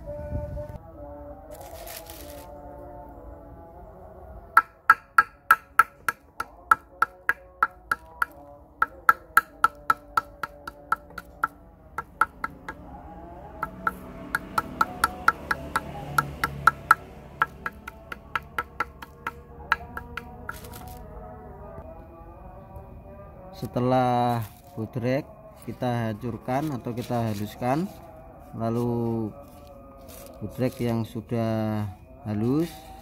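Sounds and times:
stone pestle pounding tablets: 4.6 - 12.8, 13.6 - 20.8.

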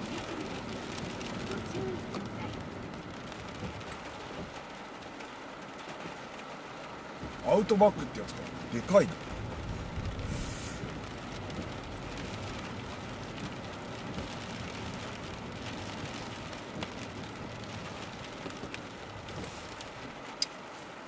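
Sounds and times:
car road noise: 0.0 - 21.0
rain on windshield: 0.0 - 21.0
tyres on wet asphalt: 0.0 - 21.0
windshield wiper sweep: 0.0 - 21.0
spray hiss of passing truck: 10.2 - 10.9.

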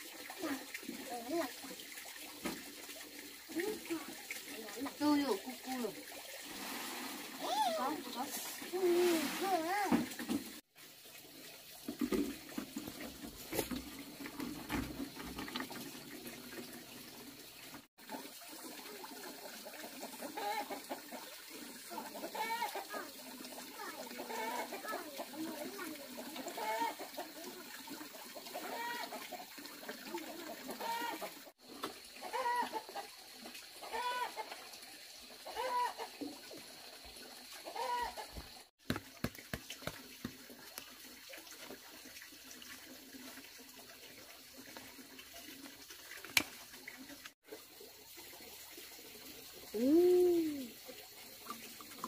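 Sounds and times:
chickens clucking: 32.2 - 33.1, 33.8 - 34.6, 35.4 - 36.2, 37.6 - 38.6.

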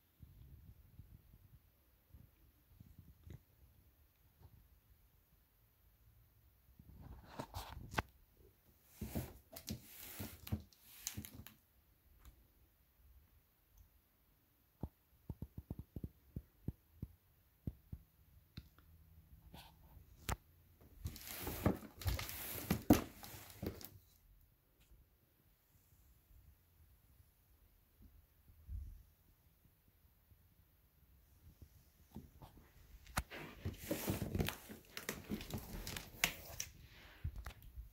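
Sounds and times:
cardboard box rustling and scraping: 8.9 - 11.4, 21.0 - 23.9, 33.2 - 36.5.

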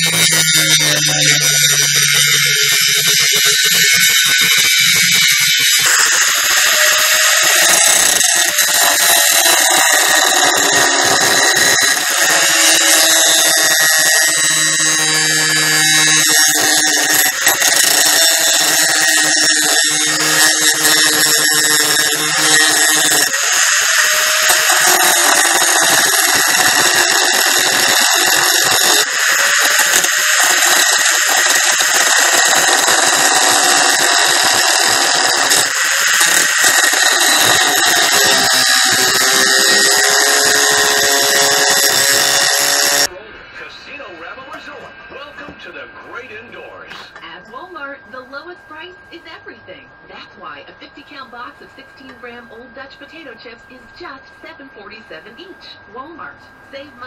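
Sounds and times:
angle grinder cutting metal: 0.0 - 43.2.

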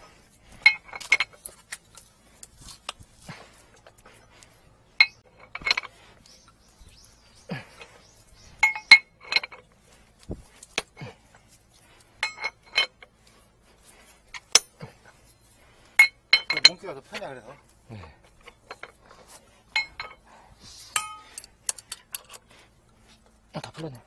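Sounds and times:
metal pipe fittings clinking: 0.4 - 6.0, 8.5 - 9.8, 10.5 - 13.4, 14.3 - 17.4, 18.3 - 23.8.

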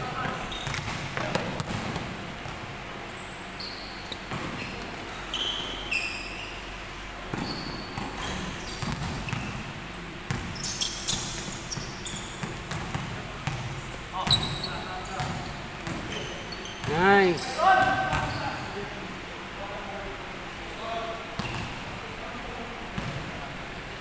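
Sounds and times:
sneaker squeaks on floor: 0.2 - 1.0, 3.2 - 9.7, 10.3 - 18.9, 21.4 - 21.8
basketball bouncing: 0.6 - 2.6, 7.3 - 9.6, 10.3 - 14.6, 15.2 - 16.1, 23.0 - 23.2.

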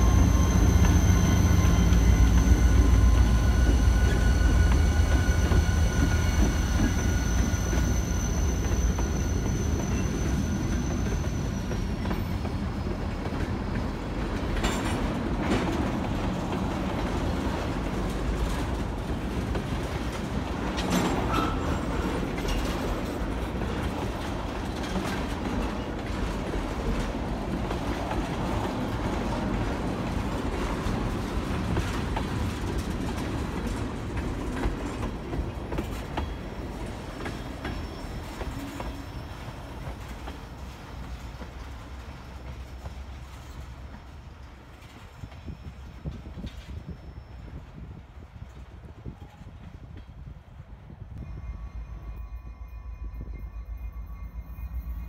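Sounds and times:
sharp clacks and squeals: 0.0 - 44.1
train wheels clicking over rail joints: 0.0 - 47.0.

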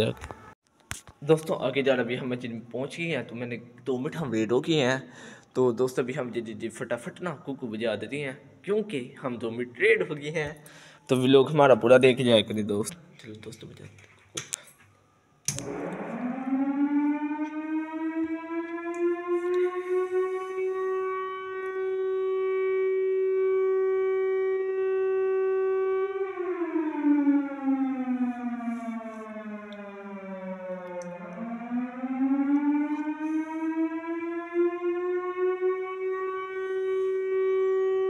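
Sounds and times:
siren wailing: 15.5 - 38.0.

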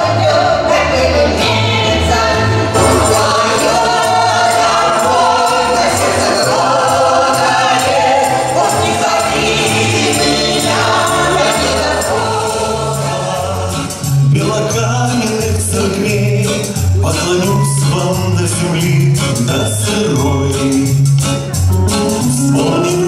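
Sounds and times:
choir singing folk song: 0.0 - 16.1.

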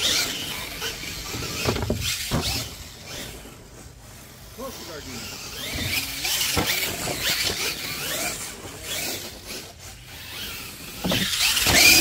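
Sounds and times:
electric motor whining: 0.0 - 12.0
tyres scrabbling on dirt: 0.0 - 12.0.

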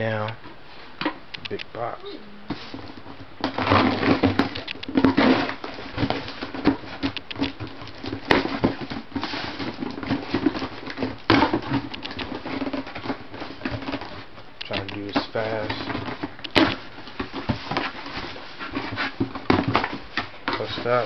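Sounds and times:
sharp clicks: 1.3 - 1.7, 4.6 - 4.9, 7.1 - 7.6, 14.6 - 15.1
cardboard rustling: 2.5 - 21.0.

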